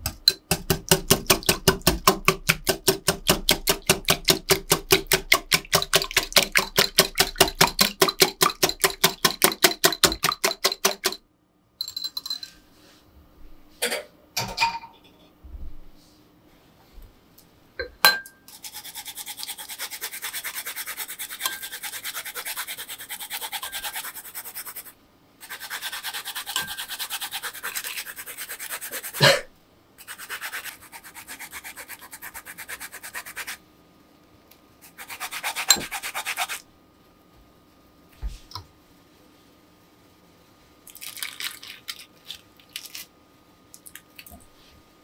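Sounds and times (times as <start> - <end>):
peel scraping on a grater: 18.5 - 29.2.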